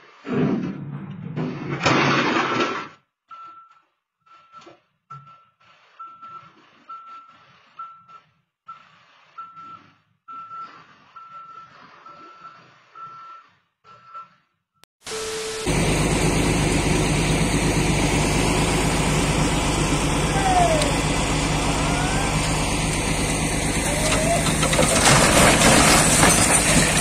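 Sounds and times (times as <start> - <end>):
reversing alarm beeping: 15.1 - 25.2
heavy diesel engine running: 15.1 - 27.0.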